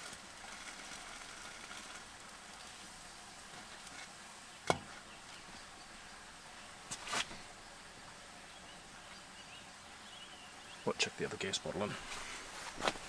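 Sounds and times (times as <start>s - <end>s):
buns sizzling in a frying pan: 0.0s - 8.4s.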